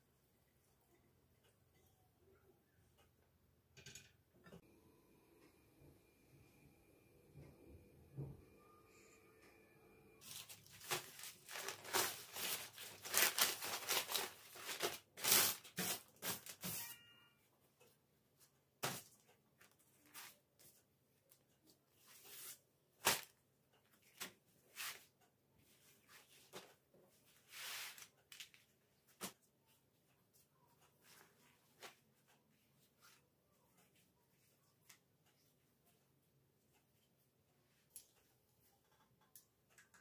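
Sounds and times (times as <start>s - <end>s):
pastry sheets and paper rustling: 10.2s - 16.8s, 23.9s - 30.4s.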